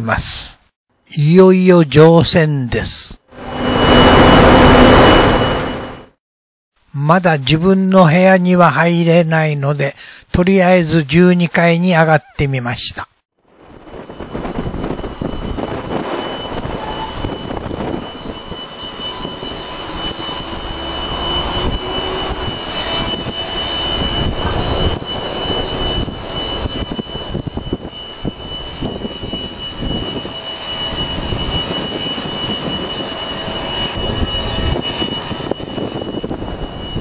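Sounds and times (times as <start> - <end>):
constant high whine: 0.0 - 6.2, 6.8 - 37.0
machinery roar: 3.3 - 6.1, 13.5 - 37.0
wind buffeting microphone: 13.6 - 37.0.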